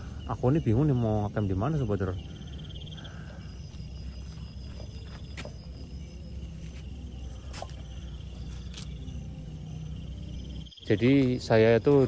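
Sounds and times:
crickets chirping: 0:00.0 - 0:12.0
steady low hum: 0:00.0 - 0:12.0.

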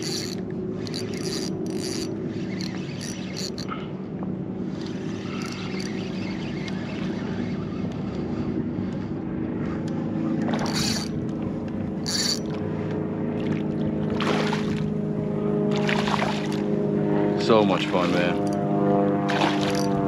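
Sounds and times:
electric motor humming: 0:00.0 - 0:03.7, 0:10.5 - 0:11.3, 0:12.0 - 0:12.5
fish splashing at surface: 0:19.3 - 0:20.0.

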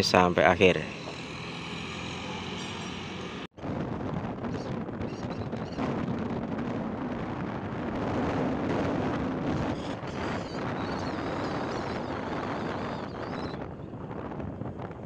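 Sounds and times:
vehicle engine: 0:00.0 - 0:03.5
road noise: 0:00.0 - 0:03.6
wind buffeting microphone: 0:03.5 - 0:15.0.

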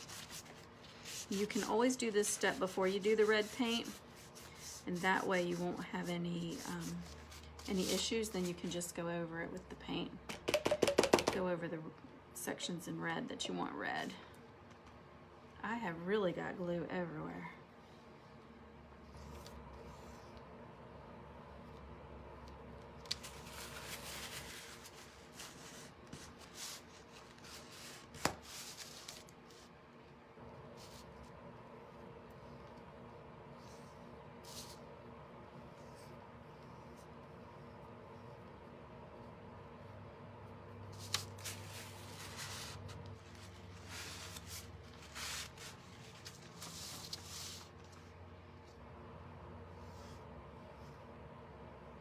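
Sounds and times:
paintbrush rubbing on wood: 0:00.0 - 0:08.1.

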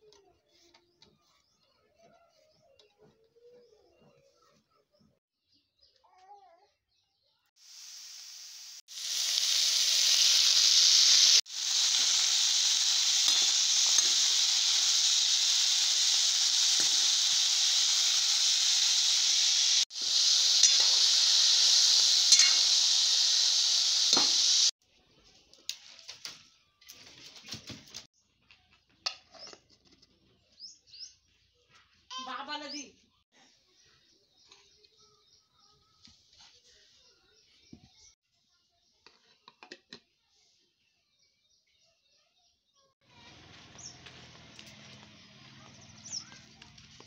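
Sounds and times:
onions and tomatoes sizzling in pan: 0:07.6 - 0:24.8, 0:43.1 - 0:47.0
metal spoon stirring: 0:22.3 - 0:22.7.

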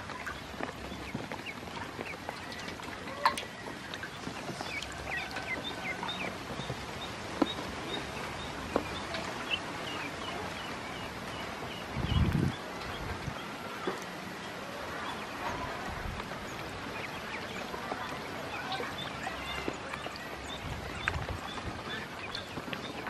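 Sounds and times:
ducklings peeping: 0:00.0 - 0:23.0
knocks and splashes in water bowl: 0:02.4 - 0:06.8.

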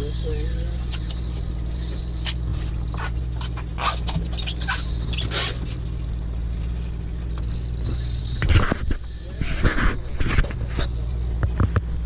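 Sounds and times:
boat engine humming: 0:00.0 - 0:12.0
short scrapes and ticks: 0:00.3 - 0:06.0, 0:07.3 - 0:11.8.

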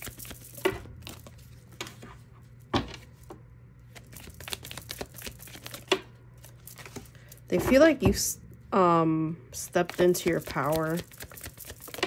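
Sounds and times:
cards shuffling: 0:00.0 - 0:02.0, 0:03.9 - 0:07.5, 0:09.7 - 0:12.0.

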